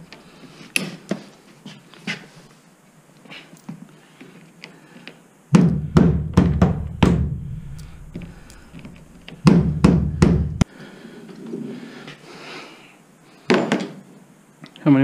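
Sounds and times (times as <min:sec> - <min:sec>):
heavy knocks on metal running board: 0:05.6 - 0:07.4, 0:09.4 - 0:10.6.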